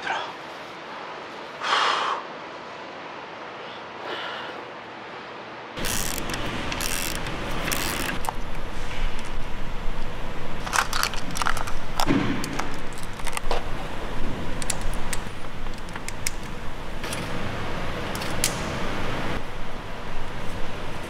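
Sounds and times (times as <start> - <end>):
steady background hiss: 0.0 - 21.0
small metal parts clinking: 10.6 - 13.5.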